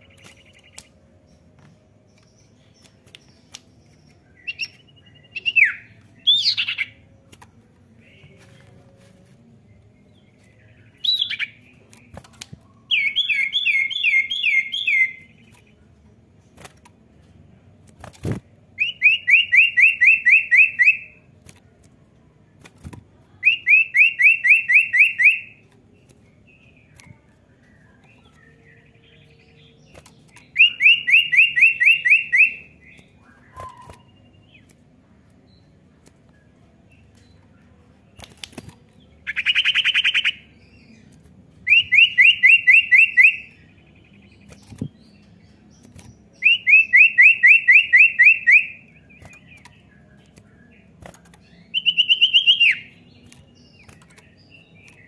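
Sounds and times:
bird singing fast trill: 10.2s - 12.2s, 12.8s - 15.6s, 41.7s - 55.0s.

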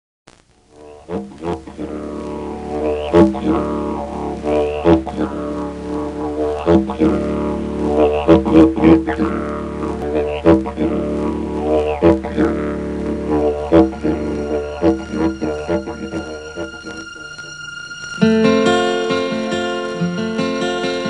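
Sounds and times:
didgeridoo drone: 0.8s - 21.0s.

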